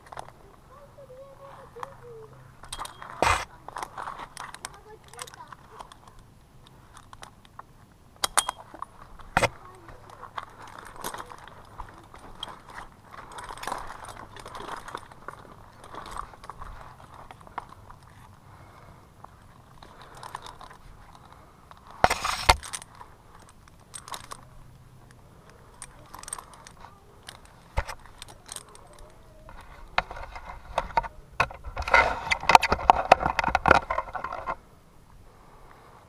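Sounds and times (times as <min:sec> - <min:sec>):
carabiners jingling and clicking: 0:01.0 - 0:07.6, 0:08.2 - 0:34.6
metal hardware scraping: 0:02.6 - 0:06.2, 0:19.8 - 0:24.5.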